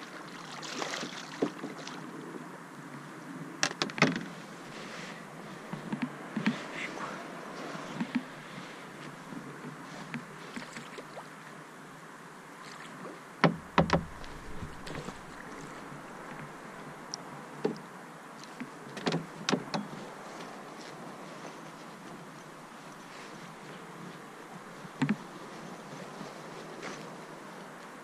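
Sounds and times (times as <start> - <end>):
paddle strokes in water: 0.0 - 2.3, 4.1 - 11.6, 12.6 - 17.8
knocks on canoe hull: 13.4 - 15.2.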